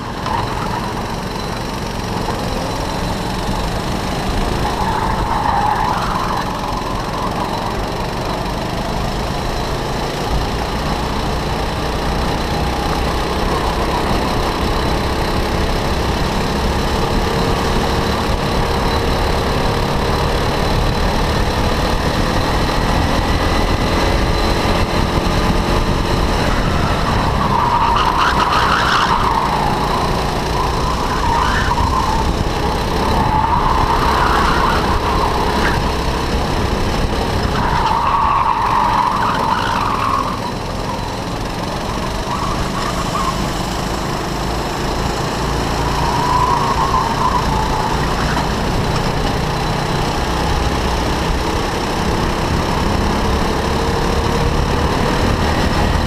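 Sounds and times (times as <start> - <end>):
go-kart engine running: 0.0 - 56.0
tyres squealing: 26.3 - 36.1, 37.4 - 43.8, 45.7 - 48.7.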